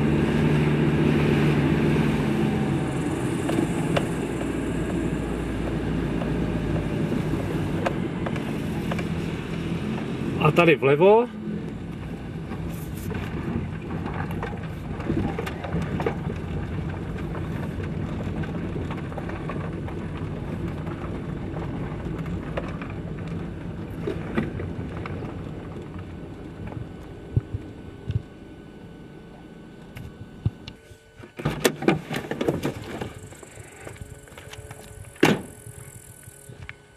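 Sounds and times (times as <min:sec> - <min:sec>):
tyres crunching on gravel: 0:00.0 - 0:28.3, 0:30.0 - 0:36.5
car engine running: 0:00.0 - 0:36.9.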